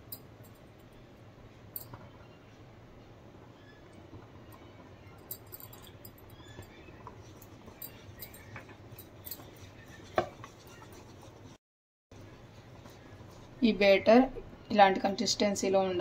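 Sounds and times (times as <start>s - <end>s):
whisk stirring batter in bowl: 5.7s - 11.6s, 12.2s - 16.0s
whisk knocking bowl: 6.4s - 11.6s, 12.2s - 14.0s.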